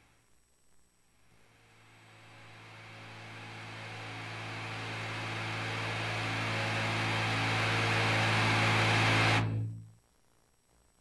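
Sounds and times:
white-noise riser: 0:01.2 - 0:09.9
low synth drone: 0:01.5 - 0:10.0.

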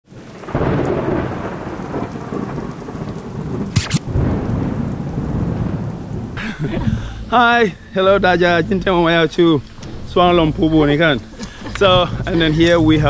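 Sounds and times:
rain falling: 0:00.0 - 0:13.0
thunder rumbling: 0:00.1 - 0:13.0
sharp thunder cracks: 0:00.2 - 0:07.8.

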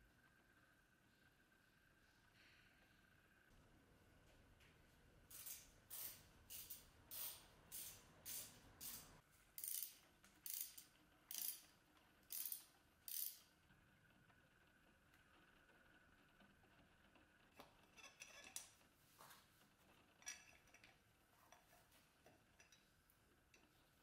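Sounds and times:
ratchet wrench clicking: 0:05.4 - 0:13.5.

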